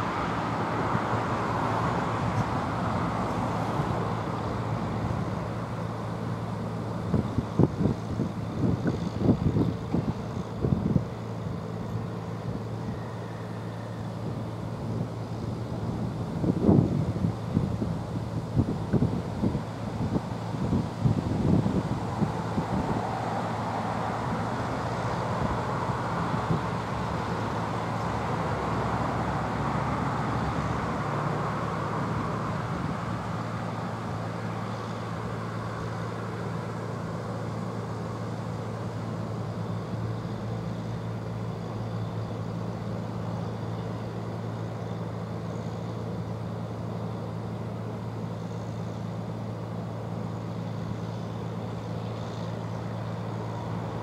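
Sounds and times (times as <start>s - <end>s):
distant train approaching: 0.0s - 9.2s.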